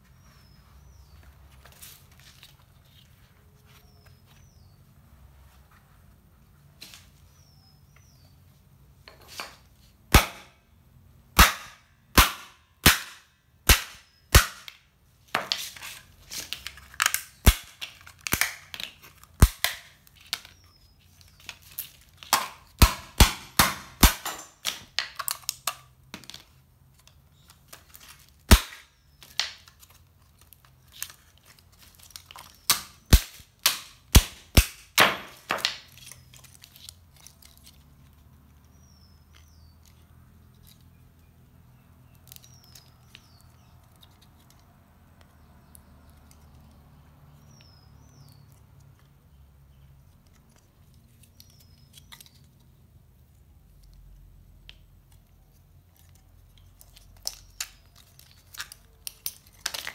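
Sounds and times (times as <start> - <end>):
plastic case cracking apart: 16.3 - 20.6, 57.2 - 59.9.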